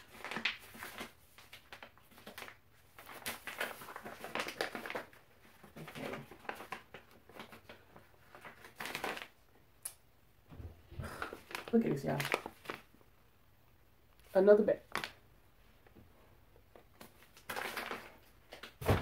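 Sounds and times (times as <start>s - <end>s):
flour bag crinkling and rustling: 0.0s - 9.5s, 11.0s - 13.0s, 14.2s - 15.3s, 16.7s - 19.0s.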